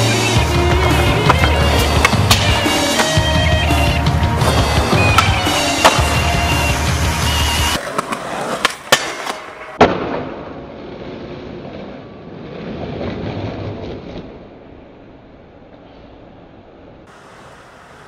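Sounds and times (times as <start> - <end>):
background music: 0.0 - 7.8
skateboard wheels rolling rumble: 0.0 - 18.0
skateboard clacking on concrete: 0.8 - 3.4, 7.7 - 9.8.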